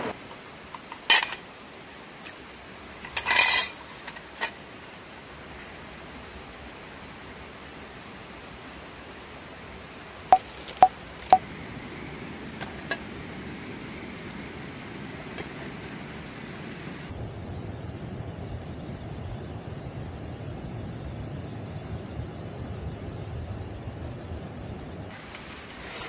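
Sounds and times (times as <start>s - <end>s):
steady hiss: 0.0s - 17.1s, 25.1s - 26.0s
metal cookware clinking: 0.8s - 1.4s, 3.0s - 4.6s.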